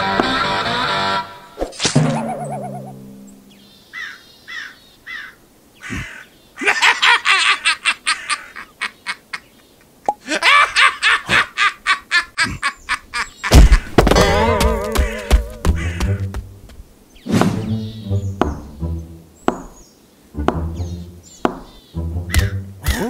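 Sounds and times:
music: 0:00.0 - 0:01.6, 0:17.5 - 0:19.4, 0:20.4 - 0:23.0
cartoon character cackling laugh: 0:02.0 - 0:03.0, 0:06.6 - 0:09.5, 0:10.1 - 0:13.8.

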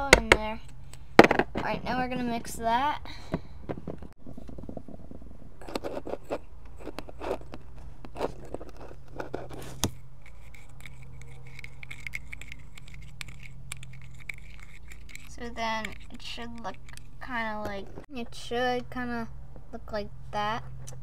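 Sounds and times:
spoon scraping cup sides: 0:05.6 - 0:17.8
plastic spoon stirring cake mix: 0:05.8 - 0:17.8.

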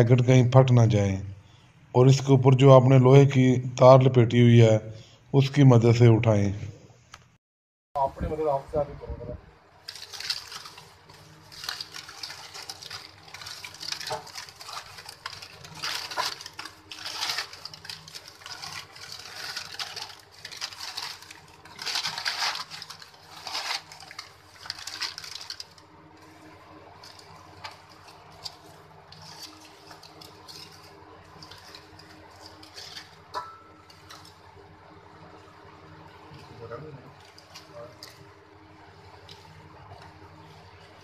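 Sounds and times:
paper crumpling and rustling: 0:09.8 - 0:34.5, 0:36.2 - 0:41.0
aluminium foil crinkling: 0:09.8 - 0:41.0.

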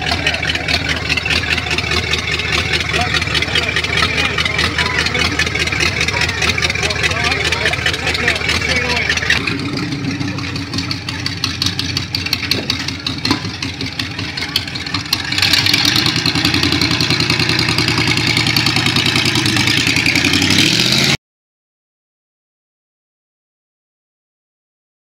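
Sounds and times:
car engine through open exhaust: 0:00.0 - 0:21.2.

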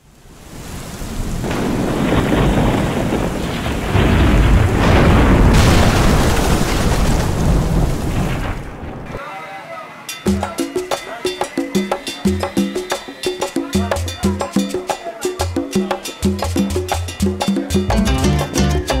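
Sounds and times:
heavy rain: 0:00.0 - 0:09.2
rolling thunder: 0:01.0 - 0:09.2.

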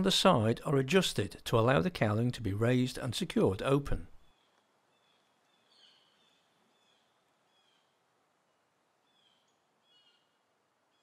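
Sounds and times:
faint high bird chirps: 0:04.3 - 0:08.0, 0:09.1 - 0:11.0.

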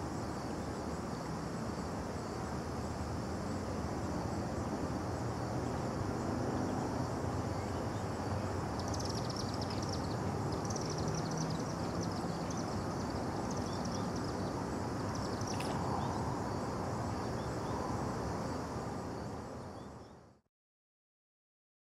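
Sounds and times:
distant traffic rumble: 0:04.0 - 0:19.6.

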